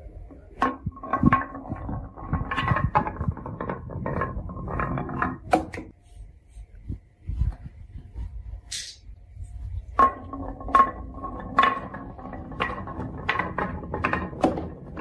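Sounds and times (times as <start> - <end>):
marble rolling on wooden track: 0.0 - 5.9, 9.6 - 15.0
marble knocking against walls: 0.6 - 5.9, 9.9 - 15.0.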